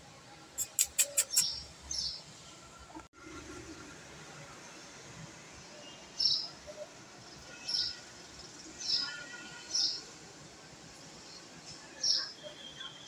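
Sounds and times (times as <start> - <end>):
small bird chirping: 0.6 - 2.2.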